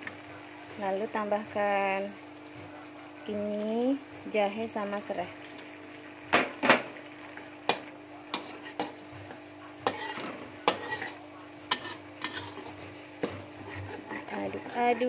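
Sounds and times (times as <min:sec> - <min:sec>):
low sizzle of frying: 0:00.0 - 0:15.0
metal spatula scraping wok: 0:08.3 - 0:09.0, 0:09.8 - 0:15.0.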